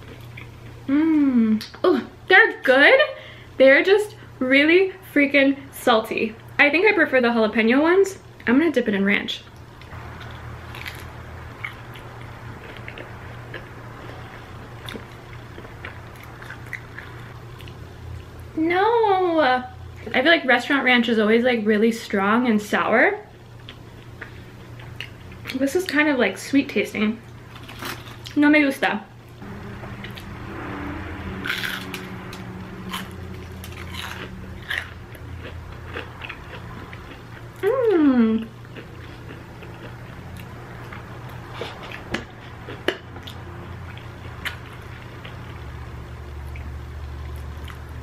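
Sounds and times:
chewing crunchy snack: 9.8s - 18.3s, 27.5s - 28.4s, 31.4s - 37.8s, 38.4s - 45.6s, 46.4s - 48.0s
low hum: 29.1s - 48.0s.

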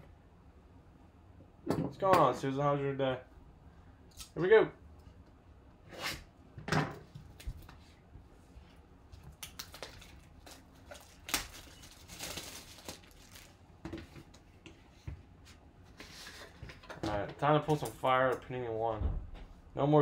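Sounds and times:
plastic wrap crinkling: 9.2s - 13.7s
plastic wrap ripping: 9.3s - 13.6s.

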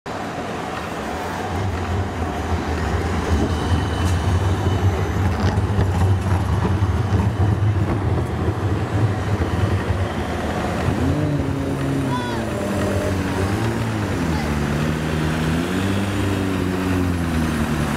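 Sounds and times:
road noise: 0.0s - 17.9s
bus engine hum: 0.1s - 17.9s
motorcycles accelerating past: 10.9s - 17.9s.

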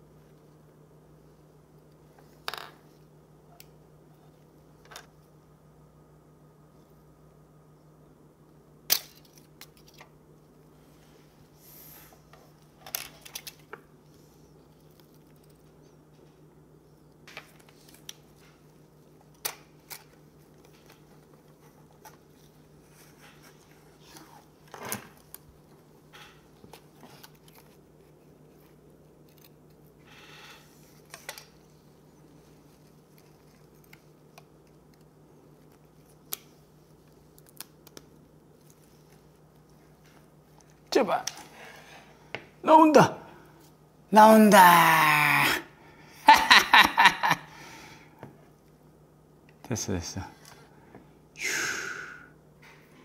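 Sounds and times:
faint steady hum: 0.0s - 53.0s.

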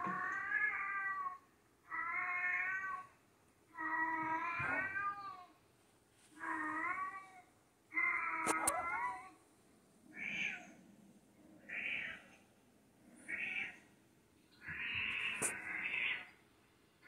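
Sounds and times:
cat yowling on tv: 0.0s - 5.6s, 6.4s - 9.4s.

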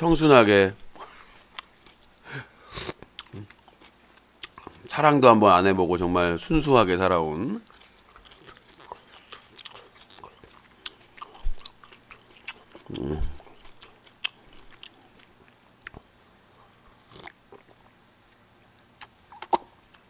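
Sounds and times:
person chewing food: 0.9s - 2.2s, 2.8s - 4.9s, 7.6s - 18.4s, 19.0s - 20.0s
low throat hum: 12.9s - 13.5s
mouth clicks: 19.0s - 20.0s.

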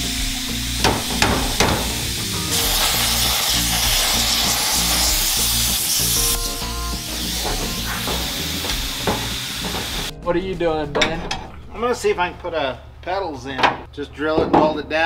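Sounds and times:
plasma cutter hissing: 0.0s - 10.1s
sharp knocks: 0.8s - 2.0s.

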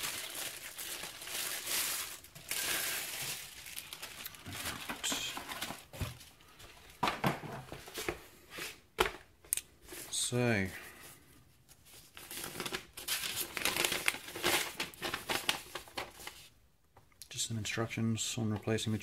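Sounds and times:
plastic wrapping crinkling: 0.0s - 7.0s, 11.1s - 16.5s.

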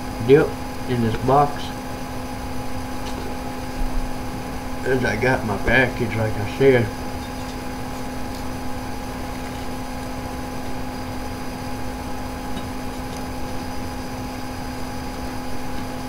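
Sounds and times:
low droning hum: 0.0s - 16.0s.

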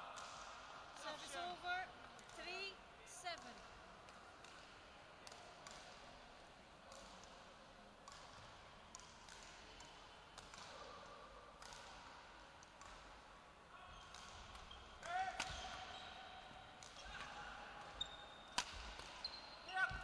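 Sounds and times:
quiet hall background: 0.0s - 20.0s
racquets striking shuttlecock: 3.4s - 6.1s, 6.8s - 13.3s, 14.0s - 16.0s, 16.7s - 19.3s.

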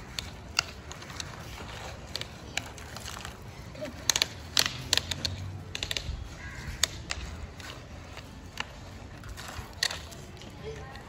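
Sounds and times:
plastic toys clacking in sand: 0.0s - 11.0s.

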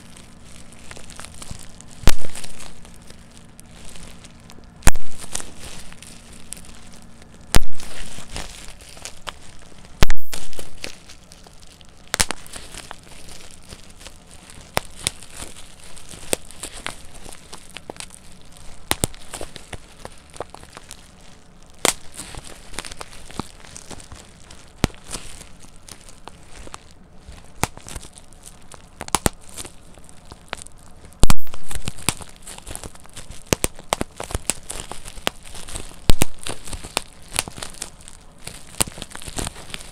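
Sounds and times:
bubble wrap crinkling: 0.0s - 39.9s
bubble wrap popping: 0.0s - 39.9s.

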